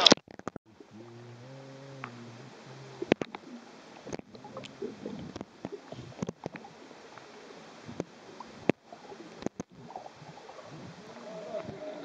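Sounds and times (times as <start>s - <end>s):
sharp underwater clicks and knocks: 0.0s - 0.6s, 3.0s - 6.7s, 7.9s - 10.4s
underwater bubbles gurgling: 0.7s - 12.0s.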